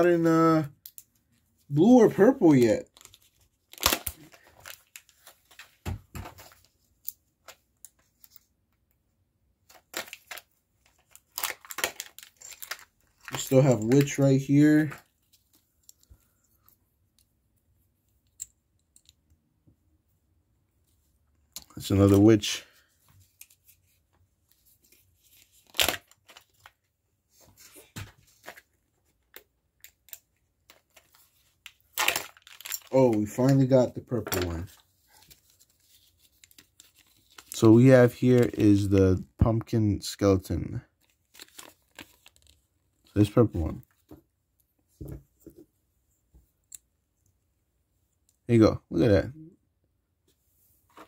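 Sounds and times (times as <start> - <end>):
plastic and foil wrapper crinkling: 1.8 - 5.8, 9.7 - 16.1, 24.6 - 26.8, 29.2 - 38.9, 41.0 - 43.9.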